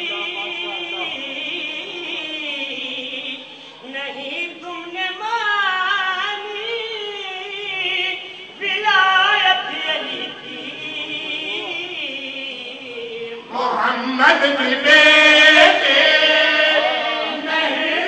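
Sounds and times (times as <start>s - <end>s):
man singing into a microphone: 0.0s - 18.0s
men singing in chorus: 13.3s - 18.0s.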